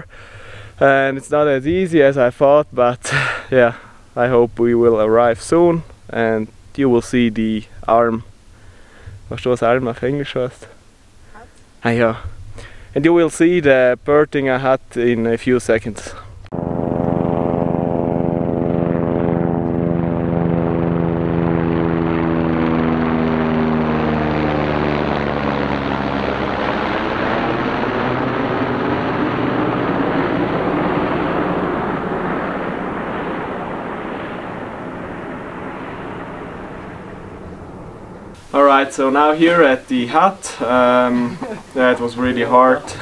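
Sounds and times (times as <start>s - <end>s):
helicopter flying past: 16.5s - 43.0s.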